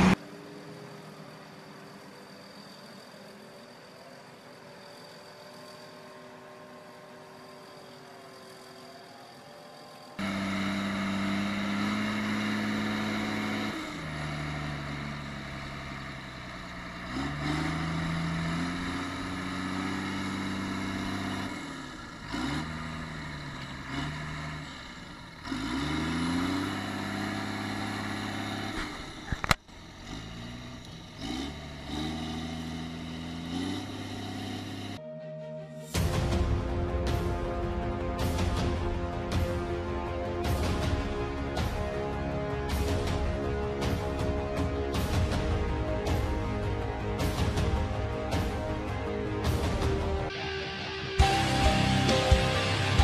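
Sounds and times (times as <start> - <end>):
tractor engine revving: 0.0 - 0.2, 10.2 - 35.0, 37.0 - 53.0.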